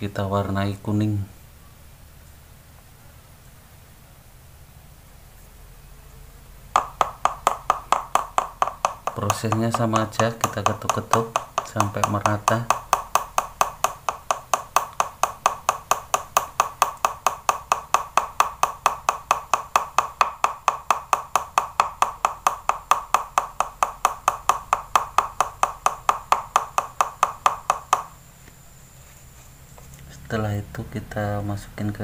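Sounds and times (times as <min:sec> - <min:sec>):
skewer tapping plastic tub: 0:06.8 - 0:28.2.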